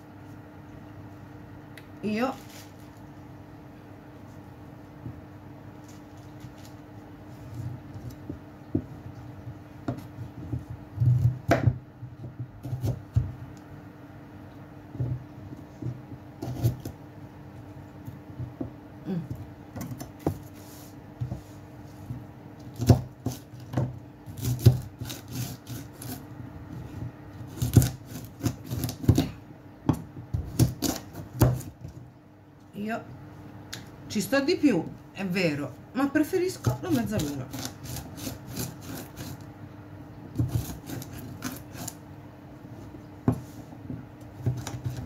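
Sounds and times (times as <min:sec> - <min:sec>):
knife cutting carrot on board: 0:12.6 - 0:13.4, 0:15.8 - 0:17.0, 0:22.6 - 0:26.2, 0:26.8 - 0:31.9, 0:36.6 - 0:39.4, 0:40.4 - 0:42.0, 0:44.4 - 0:45.0
knife scraping: 0:16.4 - 0:16.9, 0:24.3 - 0:26.3, 0:36.7 - 0:39.5, 0:40.4 - 0:42.0.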